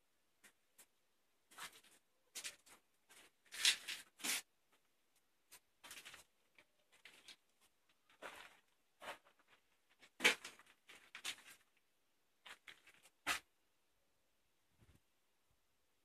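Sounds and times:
scratchy rustles and scuffs: 8.0s - 11.6s.

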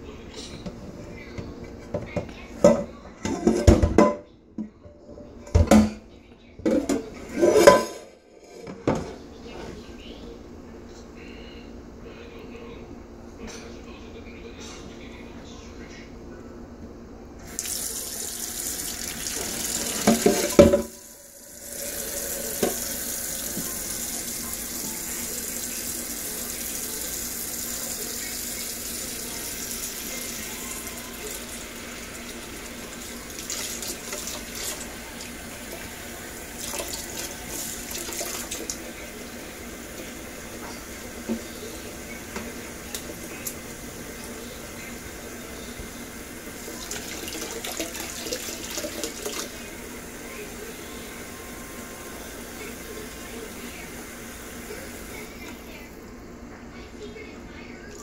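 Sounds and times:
faucet running water into a pot: 17.5s - 55.9s.

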